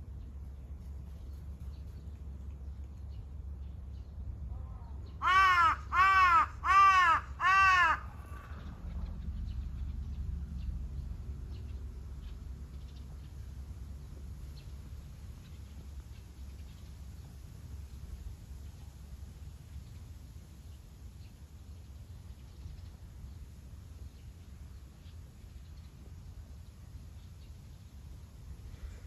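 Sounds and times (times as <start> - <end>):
crow cawing: 5.2 - 8.6.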